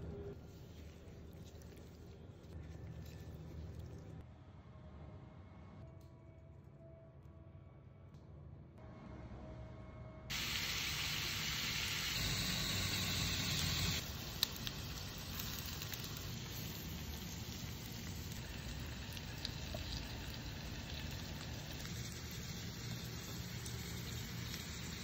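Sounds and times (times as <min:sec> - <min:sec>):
grill fire sizzling and hissing: 0:10.3 - 0:25.0.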